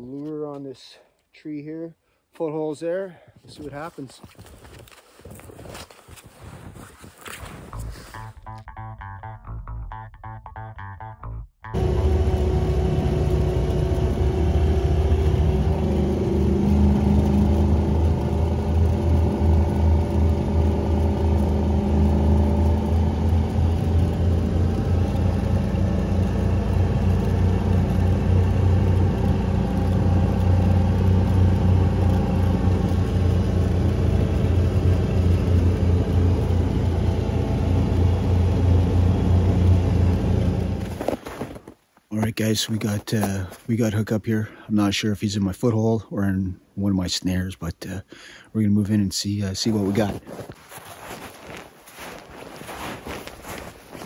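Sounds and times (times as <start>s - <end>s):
vehicle engine drone: 7.6s - 11.1s, 11.7s - 44.7s, 49.5s - 54.0s.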